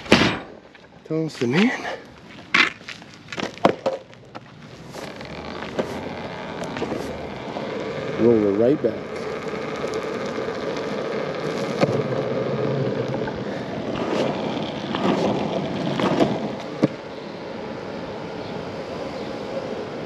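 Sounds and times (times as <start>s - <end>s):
wheeled bin rumbling on pavement: 3.4s - 17.1s.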